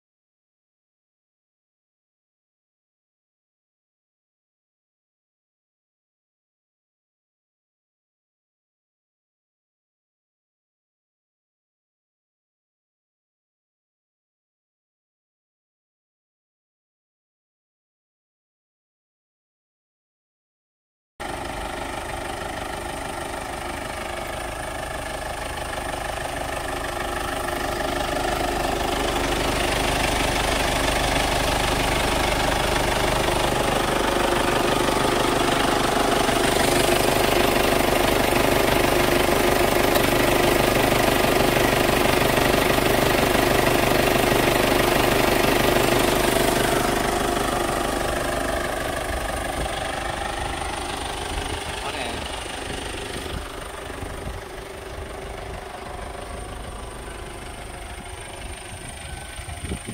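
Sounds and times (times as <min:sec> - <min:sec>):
diesel engine idling: 0:21.2 - 0:59.9.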